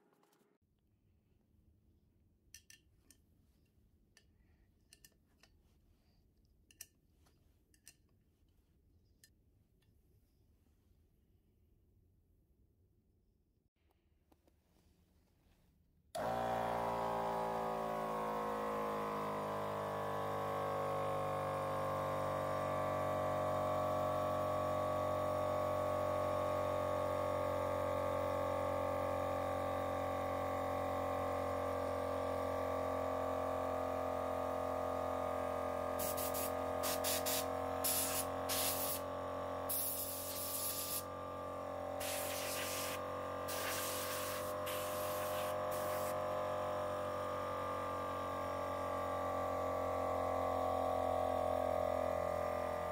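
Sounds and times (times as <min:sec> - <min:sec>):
air compressor pump running: 0:16.2 - 0:52.9
blow gun air hissing: 0:36.0 - 0:39.0, 0:39.7 - 0:41.1, 0:42.0 - 0:46.2.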